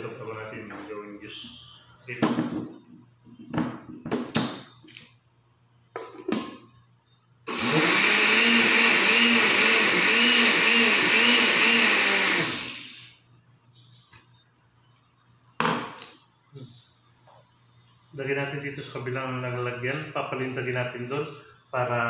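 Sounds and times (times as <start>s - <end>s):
blender motor running: 7.5s - 13.1s.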